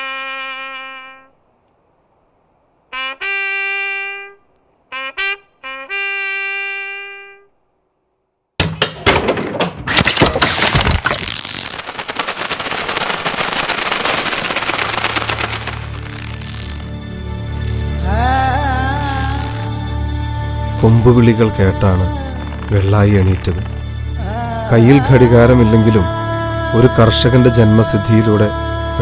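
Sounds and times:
bugle call: 2.9 - 7.5
rapid gunfire: 11.8 - 16.7.

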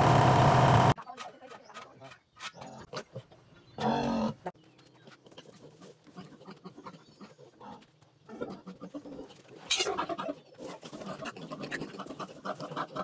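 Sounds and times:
piglets grunting: 5.3 - 13.0.

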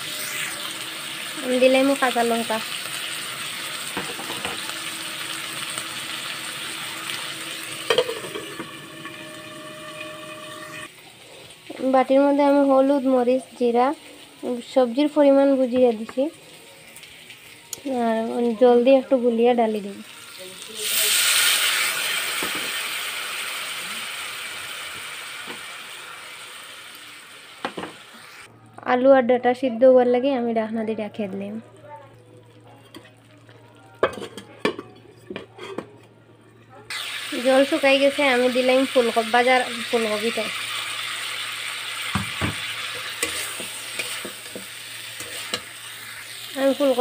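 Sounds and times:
vegetables sizzling in hot oil: 0.0 - 28.5, 36.9 - 47.0.

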